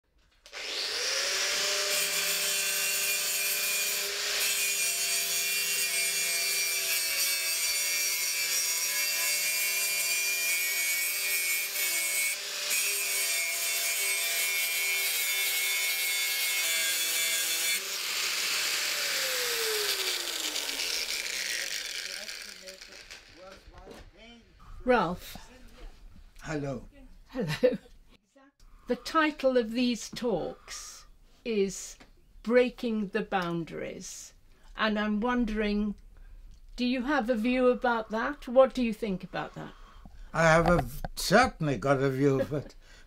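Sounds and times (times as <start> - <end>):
angle grinder grinding metal: 0.5 - 24.0.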